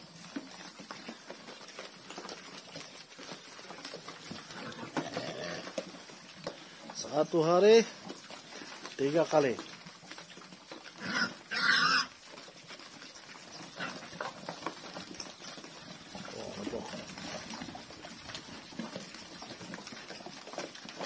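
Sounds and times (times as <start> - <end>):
pigs grunting: 0.0 - 21.0
pigs slurping and chomping: 0.0 - 21.0
pig squeals: 11.0 - 12.2.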